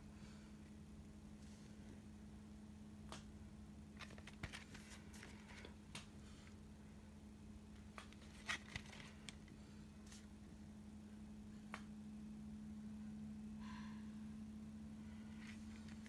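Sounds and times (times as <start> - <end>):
steady low hum: 0.0 - 16.0
cd case clicks and rustles: 4.0 - 5.7, 7.8 - 9.5.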